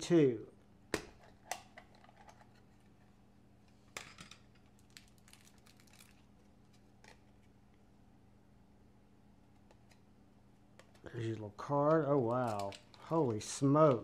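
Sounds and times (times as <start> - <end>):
faint handling clicks and taps: 11.8 - 14.0.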